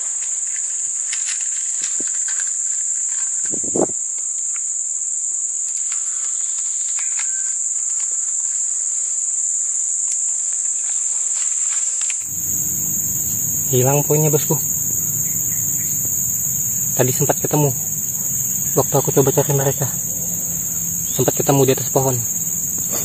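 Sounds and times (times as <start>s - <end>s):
insects droning: 0.0s - 23.0s
leaves rustling: 12.2s - 23.0s.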